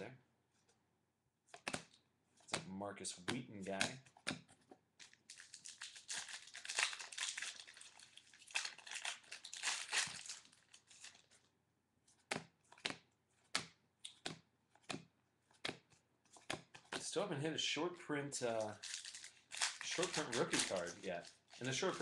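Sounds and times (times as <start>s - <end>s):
cards snapping: 1.5s - 7.8s, 12.1s - 17.0s, 18.6s - 22.0s
foil wrapper tearing and crinkling: 5.0s - 11.3s, 18.6s - 22.0s.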